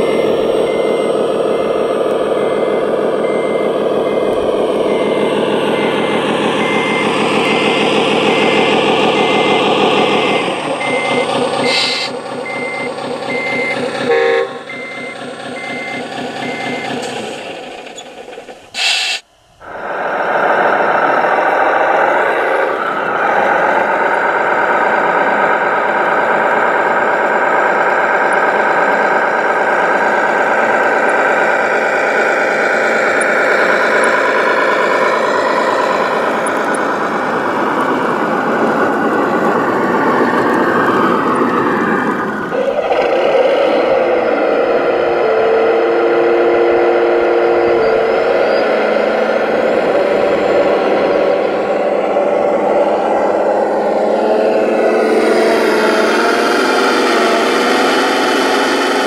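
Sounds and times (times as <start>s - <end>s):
reversing beep: 0.0s - 19.2s, 47.6s - 53.7s
model truck engine sound: 0.0s - 59.0s
air brake hiss: 11.7s - 12.2s, 18.8s - 19.3s.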